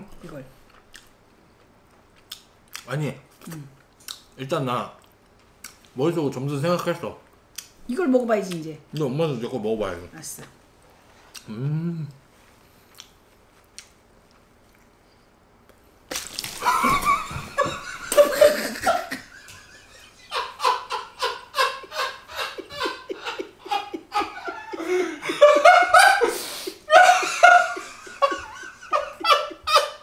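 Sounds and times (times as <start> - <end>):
woman laughing heartily: 16.5 - 30.0.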